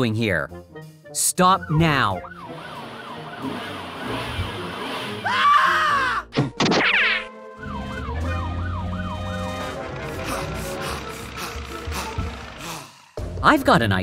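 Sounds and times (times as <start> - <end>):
light background music: 0.0 - 14.0
police siren wailing: 1.4 - 6.1, 7.3 - 13.2.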